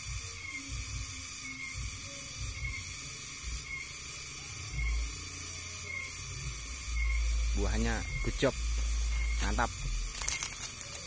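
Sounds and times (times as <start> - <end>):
high-pitched pulsing hiss: 0.0 - 11.0.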